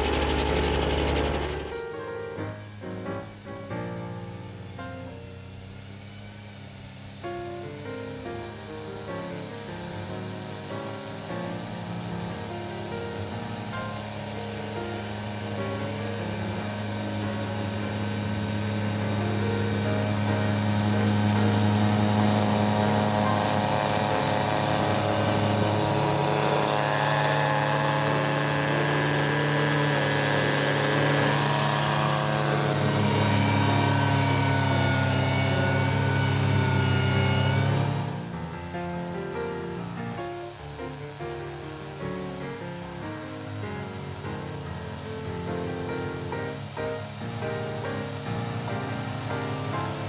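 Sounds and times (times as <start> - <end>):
tractor diesel engine running hard: 0.0 - 1.8, 10.4 - 39.1, 45.9 - 47.3.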